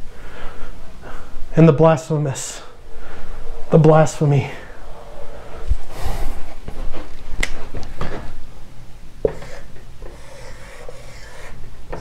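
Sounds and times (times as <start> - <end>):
marker writing on whiteboard: 9.2 - 12.0.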